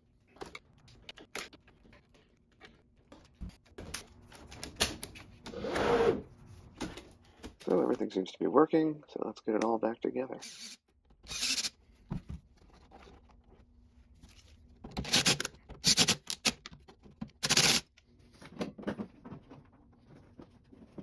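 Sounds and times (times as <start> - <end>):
hands rustling plastic and wiring: 0.0 - 5.5, 11.8 - 21.0.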